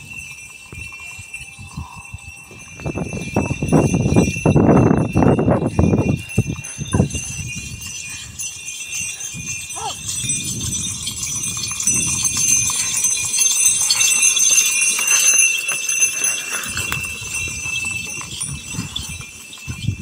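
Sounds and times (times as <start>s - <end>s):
bullock bells jingling: 0.0s - 20.0s
hooves scuffing: 10.8s - 20.0s
wooden plough dragging through soil: 11.2s - 20.0s.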